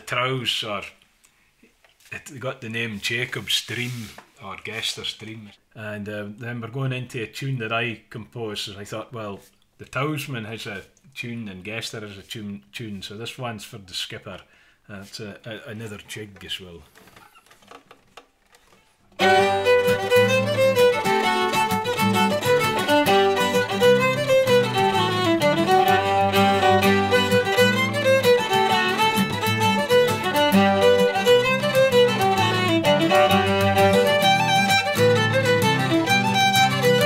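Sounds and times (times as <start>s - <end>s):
acoustic guitar accompaniment: 19.2s - 37.0s
fiddle melody: 19.2s - 37.0s.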